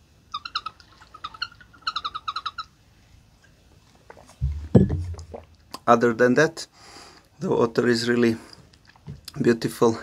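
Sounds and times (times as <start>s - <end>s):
low thump: 4.4s - 5.4s.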